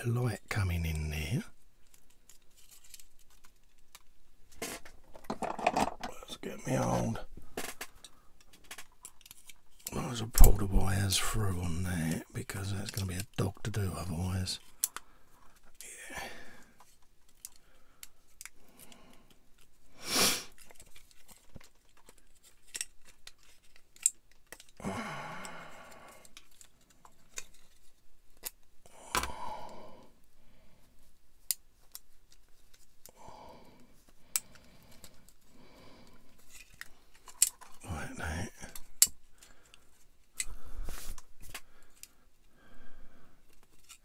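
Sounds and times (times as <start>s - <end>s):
small plastic parts clicking and tapping: 1.8s - 6.1s, 7.5s - 10.6s, 14.6s - 15.8s, 16.7s - 19.8s, 20.6s - 24.8s, 25.4s - 29.4s, 31.4s - 33.2s, 34.1s - 35.4s, 36.0s - 37.8s, 38.6s - 42.2s.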